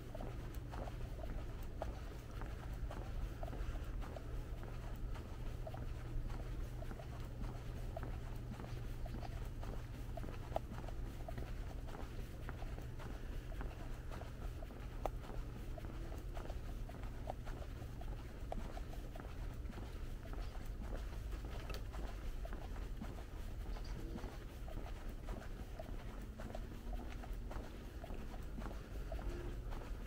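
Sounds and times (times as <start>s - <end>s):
footsteps crackling on trail: 0.0s - 30.0s
steady low rumble: 0.0s - 30.0s.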